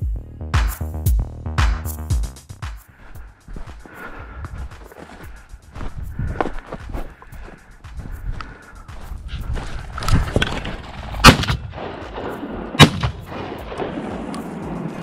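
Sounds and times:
shotgun shots: 11.2 - 14.8.

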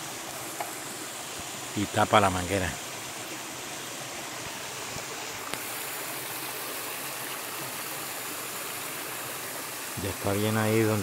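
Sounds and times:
mountain stream flowing over stones: 0.0 - 11.0
faint tap: 0.5 - 0.8.

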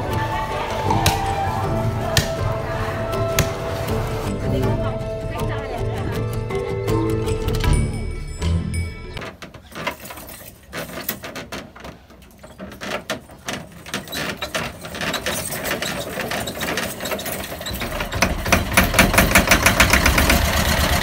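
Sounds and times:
hand-cranking clattering clicks: 5.7 - 21.0
boat engine running: 17.5 - 21.0.

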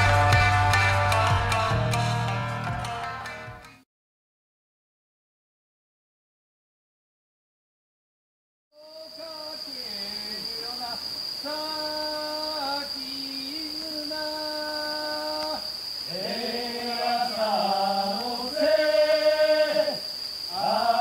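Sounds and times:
high insect trill: 8.8 - 21.0
voices chanting: 8.8 - 21.0.

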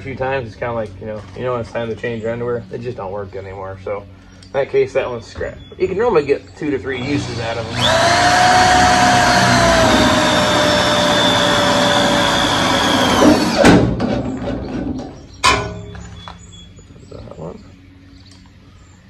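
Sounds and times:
cordless drill motor whine: 6.9 - 13.6.

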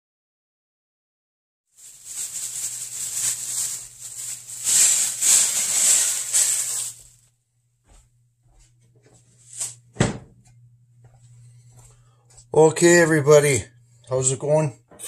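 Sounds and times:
cloth rustling over a sink: 1.8 - 7.2
steady low hum: 2.1 - 14.1.

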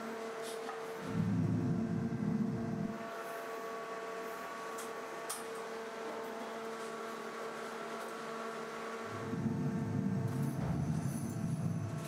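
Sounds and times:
machine humming: 1.0 - 5.2, 8.4 - 12.0.

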